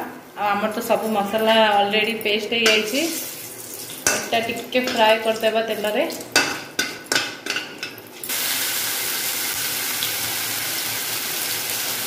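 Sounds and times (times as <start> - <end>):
spices frying in oil: 0.4 - 12.0
loud steady sizzle: 8.1 - 12.0.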